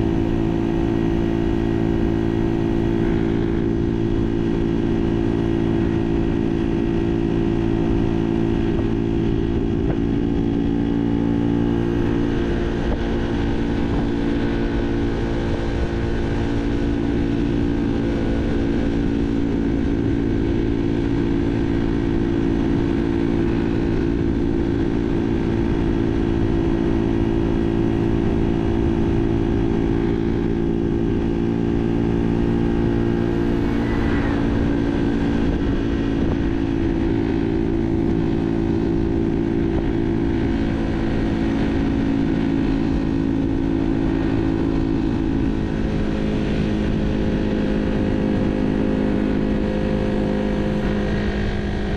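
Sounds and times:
moped engine running: 0.0s - 51.9s
steady low rumble: 17.0s - 47.2s.

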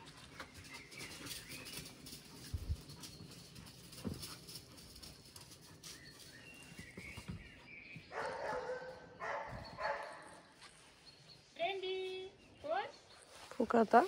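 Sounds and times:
dog barking: 8.1s - 10.3s.

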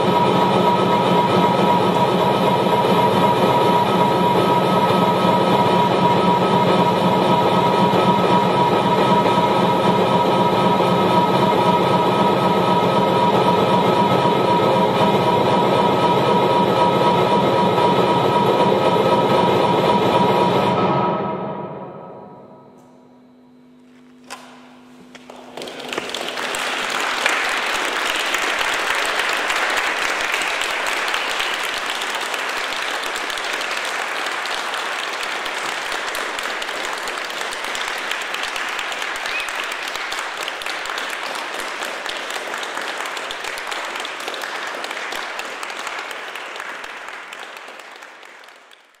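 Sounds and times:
audience applauding: 0.0s - 18.9s, 25.1s - 49.0s
low held electronic tone: 20.8s - 25.1s.

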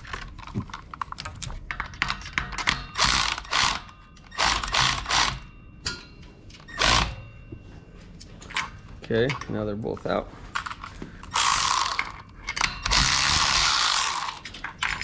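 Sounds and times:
electric ratchet running: 3.0s - 5.5s, 6.8s - 7.2s, 11.3s - 12.2s, 12.8s - 14.5s.

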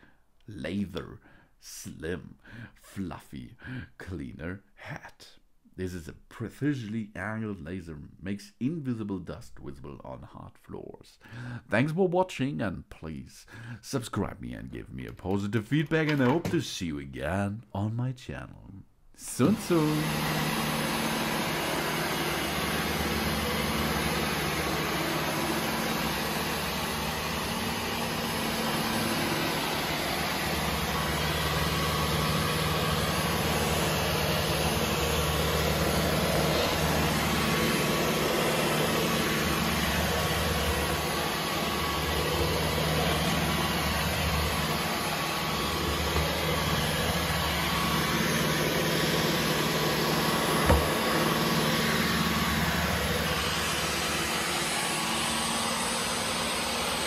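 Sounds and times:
vacuum cleaner running on hard floor: 19.4s - 57.0s.

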